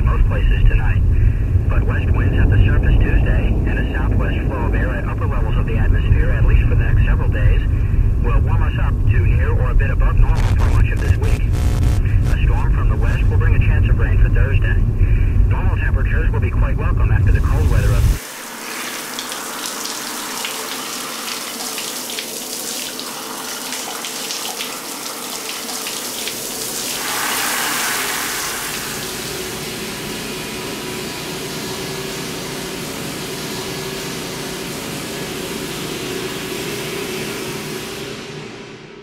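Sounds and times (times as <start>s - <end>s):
low rumble: 0.2s - 18.2s
shower spray splashing: 17.6s - 38.3s.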